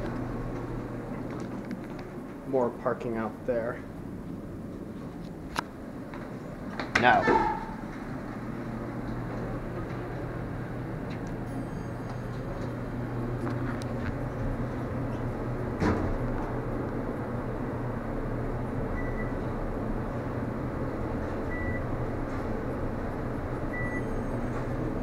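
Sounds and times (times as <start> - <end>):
elevator humming: 0.0 - 25.0
elevator doors shutting: 6.8 - 17.1, 17.7 - 25.0.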